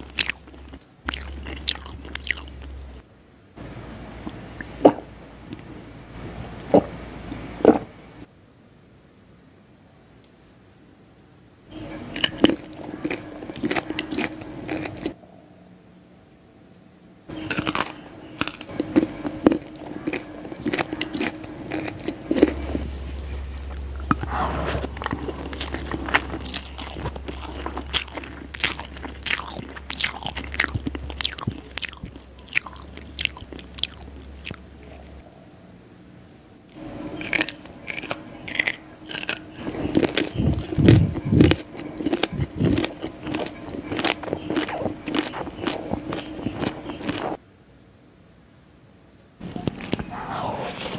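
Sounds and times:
person chewing crunchy food: 0.0s - 3.0s, 11.7s - 15.2s, 17.3s - 35.2s, 36.8s - 47.4s, 49.4s - 50.9s.

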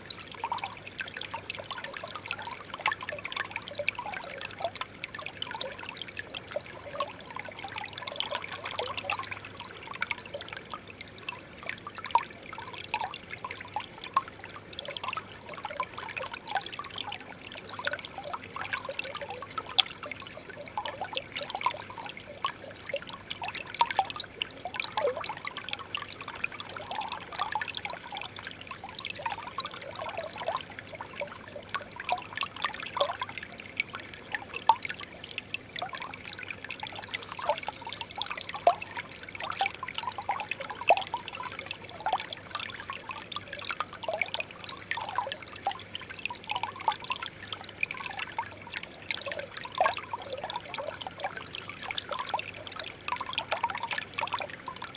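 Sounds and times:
stream trickling over stones: 0.0s - 54.9s.

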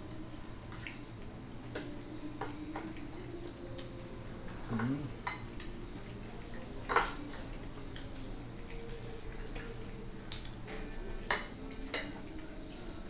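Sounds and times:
cutlery clinking on plates: 4.7s - 5.8s, 6.5s - 8.1s, 9.4s - 12.5s.

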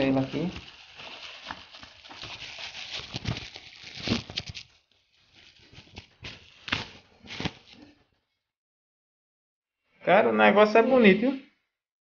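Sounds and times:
bubble wrap crinkling: 0.0s - 8.1s.

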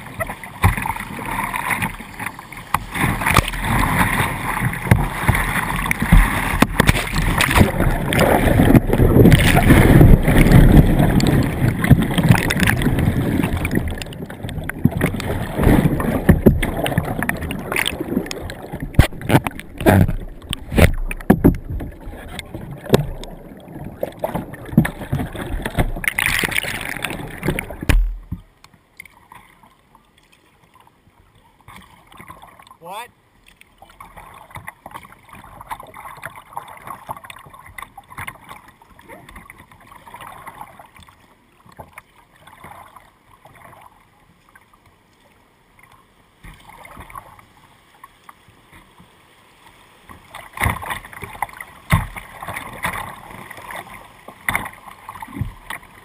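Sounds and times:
whitewater rushing and splashing: 0.0s - 28.4s
water churning and gurgling: 0.0s - 56.0s.

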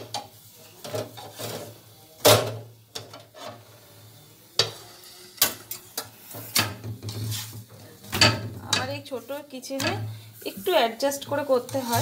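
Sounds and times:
wooden spatula scraping metal pan: 0.8s - 1.8s, 3.0s - 9.1s, 9.7s - 12.0s.

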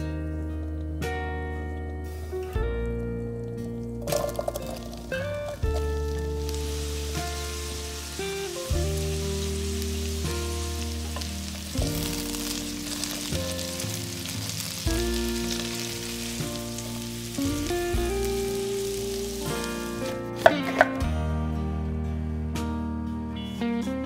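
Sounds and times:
soft background music: 0.0s - 24.0s
food sizzling in oil: 4.0s - 20.9s.

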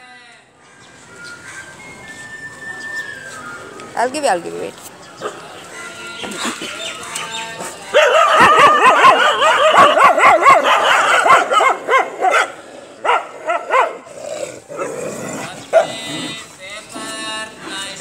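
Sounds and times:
dogs barking and yelping: 6.3s - 17.1s.

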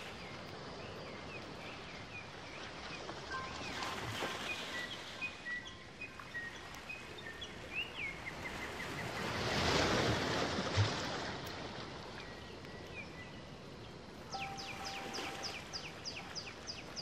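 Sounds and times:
small birds chirping: 12.2s - 17.0s.

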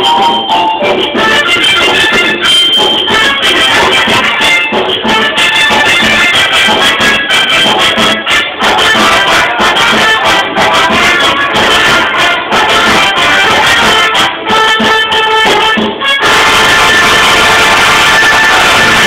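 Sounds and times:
electronic keyboard music: 0.0s - 7.0s.

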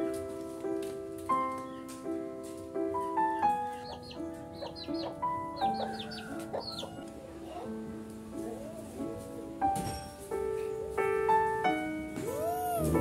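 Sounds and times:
soft piano music: 0.0s - 13.0s
bird chirps: 3.7s - 7.7s, 12.2s - 13.0s.

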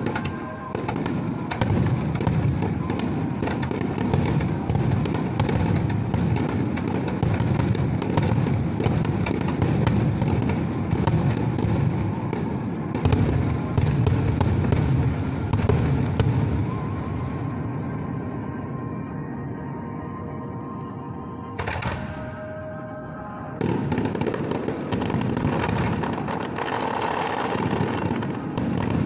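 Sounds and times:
fireworks crackling: 0.0s - 17.1s, 23.6s - 29.0s
fireworks booming: 0.0s - 17.6s, 23.6s - 29.0s.

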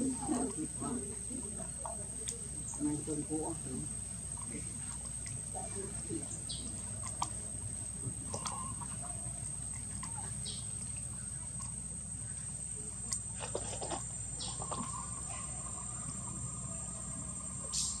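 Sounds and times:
low hum: 0.0s - 18.0s
high-pitched whine: 14.7s - 18.0s.

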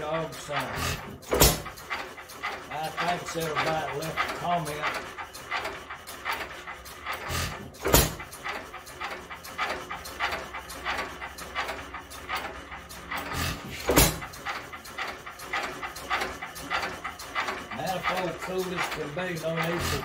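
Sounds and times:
stationary engine puffing and clicking: 0.0s - 20.0s.

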